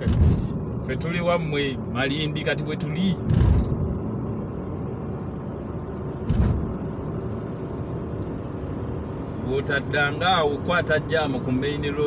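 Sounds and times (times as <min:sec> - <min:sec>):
car engine and tyre rumble: 0:00.0 - 0:12.0
brief thump: 0:06.3 - 0:06.7.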